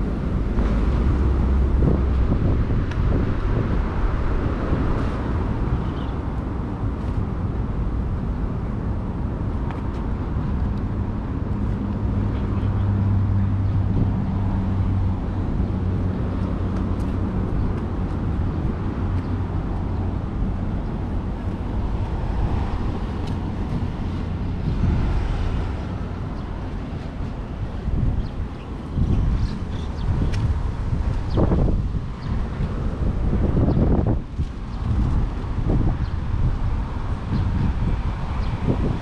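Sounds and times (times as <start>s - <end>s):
low engine drone: 0.0s - 30.1s
road traffic rumble: 0.0s - 39.0s
wind buffeting microphone: 0.0s - 39.0s.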